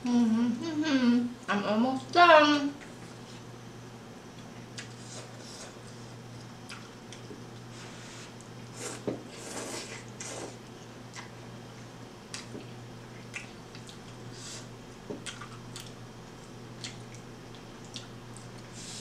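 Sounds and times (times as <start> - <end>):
steady low hum: 0.0 - 19.0
chewing with wet mouth clicks: 4.3 - 5.0, 6.3 - 7.7, 10.0 - 14.2, 14.9 - 18.7.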